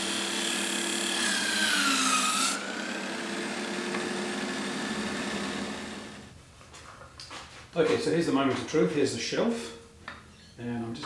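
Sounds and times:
sanding disc grinding wood: 0.0s - 6.3s.

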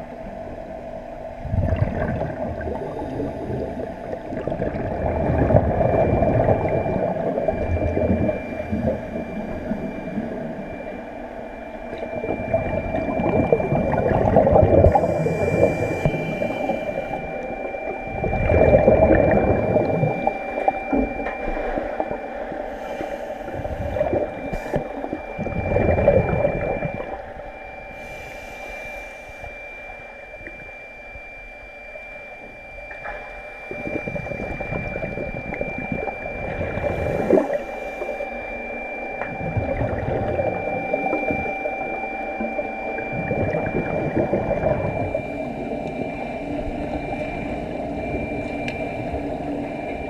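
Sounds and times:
exhaust bubbles rumbling: 0.0s - 28.2s, 32.4s - 50.0s
steady high hum: 0.0s - 50.0s
regulator inhale hiss: 14.9s - 17.3s, 22.7s - 25.1s, 27.9s - 29.6s.

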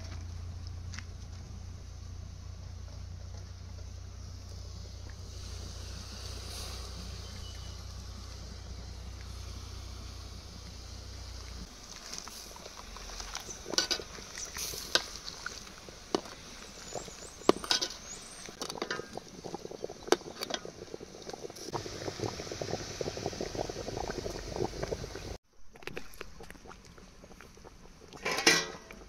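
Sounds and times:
fine crackle: 2.9s - 25.4s
curry bubbling in a pot: 3.7s - 29.0s
utensil clinking against a pot: 13.7s - 14.1s, 17.5s - 19.2s, 28.2s - 29.0s.

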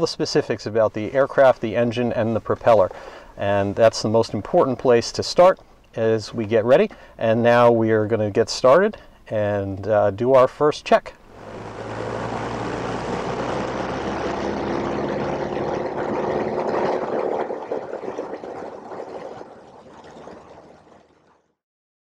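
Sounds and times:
light aircraft engine drone: 11.3s - 20.1s.

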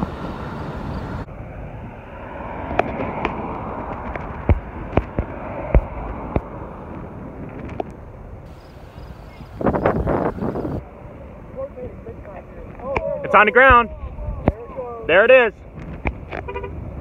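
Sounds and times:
gusty wind on microphone: 0.0s - 11.2s, 12.6s - 17.0s
car road and wind noise: 0.0s - 17.0s
sharp clicks and pops: 2.7s - 8.0s.

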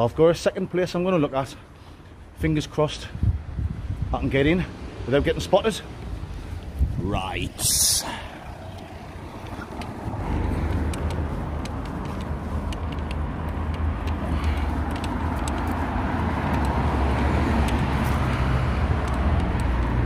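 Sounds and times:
road traffic rumble: 0.0s - 20.0s
faint light ticks: 10.7s - 15.8s, 19.0s - 20.0s.

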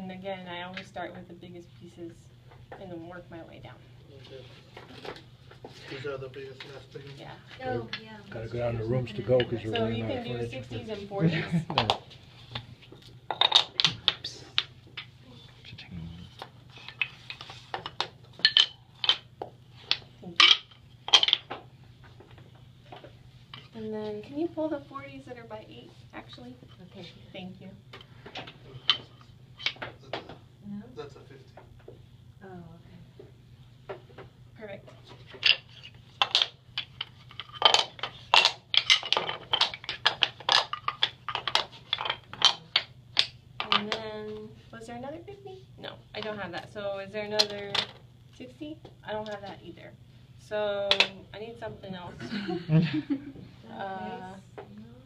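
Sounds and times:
wooden blocks clacking: 11.8s - 12.7s, 13.3s - 15.1s, 16.4s - 23.7s, 28.4s - 30.3s, 35.2s - 44.1s, 50.8s - 51.1s.

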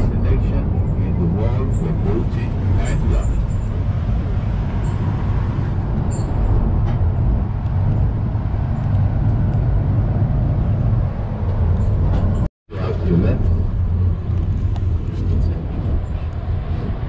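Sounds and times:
bus engine rumble: 0.0s - 17.0s
road noise rushing: 0.0s - 17.0s.

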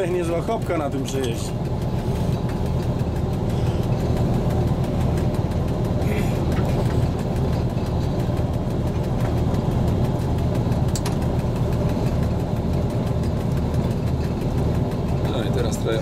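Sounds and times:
diesel locomotive engine running: 0.0s - 16.0s.

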